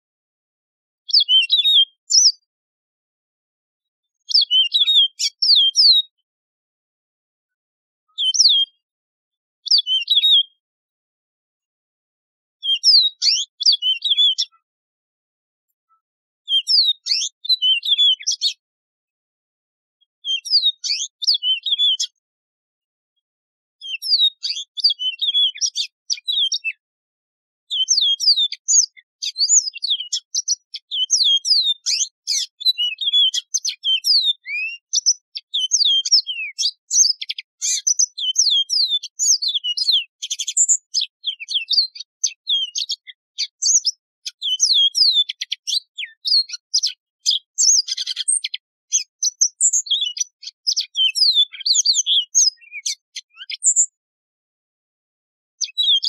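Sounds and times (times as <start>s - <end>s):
bird singing whistles and trills: 1.1s - 2.5s, 4.2s - 6.2s, 8.1s - 8.8s, 9.6s - 10.6s, 12.6s - 14.6s, 15.9s - 18.6s, 20.2s - 22.2s, 23.8s - 26.8s, 27.7s - 54.0s.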